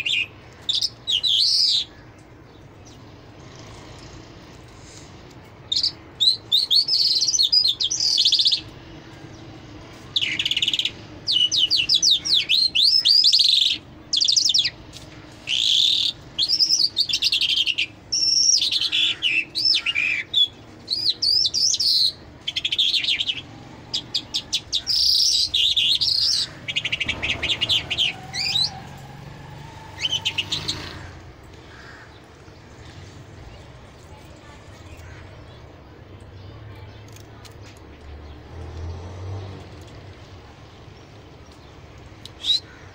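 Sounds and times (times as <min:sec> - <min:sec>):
lark singing trills and chirps: 0:00.0 - 0:03.1, 0:05.7 - 0:08.7, 0:10.1 - 0:14.8, 0:15.4 - 0:29.0, 0:41.0 - 0:42.8.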